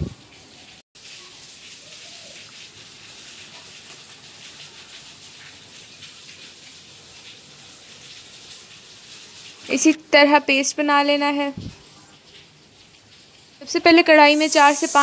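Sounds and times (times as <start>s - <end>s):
steady hiss: 14.2s - 15.0s.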